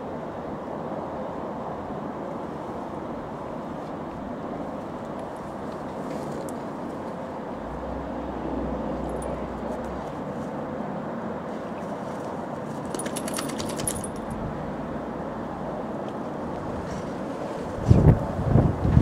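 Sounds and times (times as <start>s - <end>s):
wind noise on microphone: 16.4s - 19.0s.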